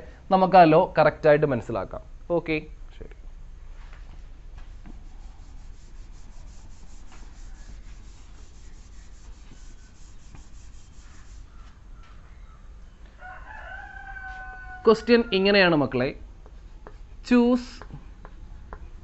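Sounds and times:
duster rubbing on chalkboard: 4.6 - 11.8.

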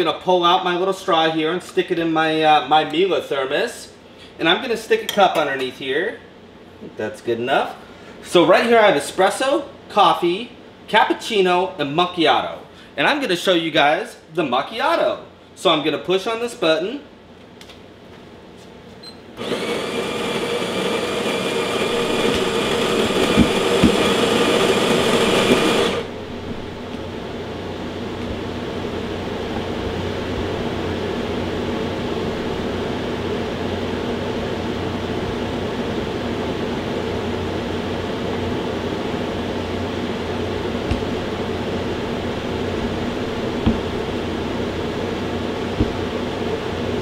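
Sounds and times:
coffee grinder milling beans: 19.4 - 26.1
machine hum: 19.4 - 47.0.

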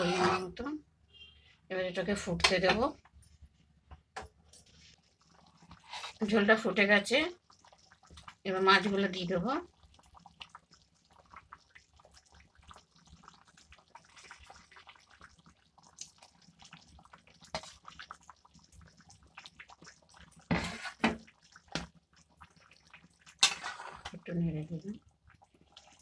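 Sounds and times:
spatula scraping a pan: 0.0 - 0.6, 5.8 - 6.2, 20.5 - 21.2, 23.4 - 24.2
broth bubbling in a pan: 2.0 - 26.0.

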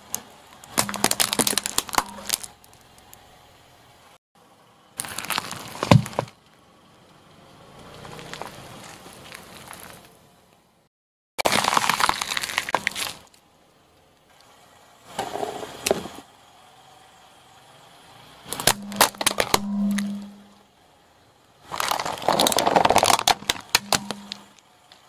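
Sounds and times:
car tyre rolling: 0.0 - 4.1, 4.7 - 10.7, 11.5 - 16.8, 18.1 - 25.0
plastic cup cracking: 0.7 - 2.6, 11.4 - 13.3, 21.7 - 24.4.

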